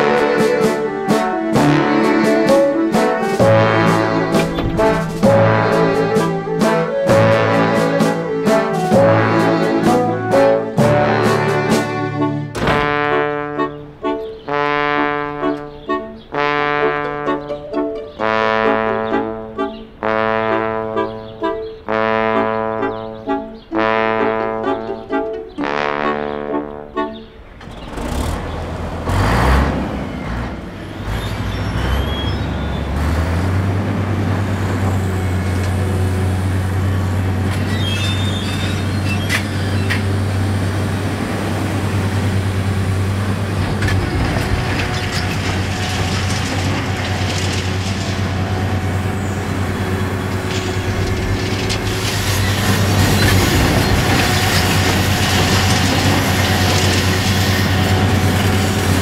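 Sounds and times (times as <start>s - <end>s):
excavator diesel engine drone: 0.0s - 14.4s, 27.4s - 59.0s
debris knocking and clanking: 1.6s - 9.2s, 10.8s - 13.3s, 43.0s - 59.0s.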